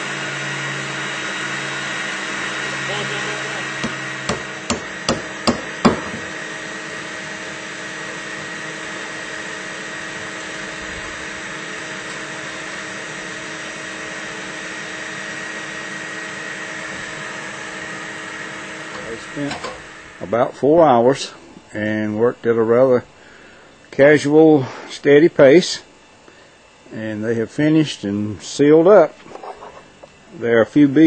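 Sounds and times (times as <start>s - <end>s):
faint hum: 1.9s - 31.0s
hammer nailing: 3.8s - 6.3s.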